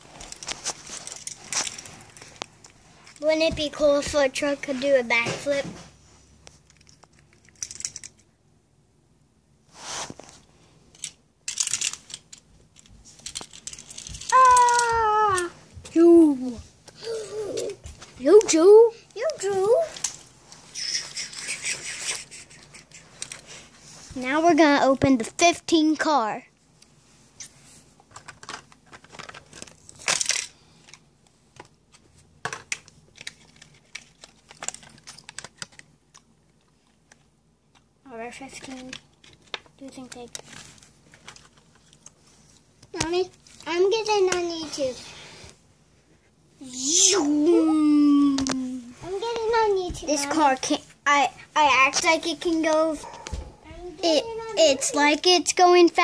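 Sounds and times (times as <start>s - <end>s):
toy cars clicking and clattering: 6.6s - 8.3s, 10.9s - 14.9s, 28.2s - 31.0s.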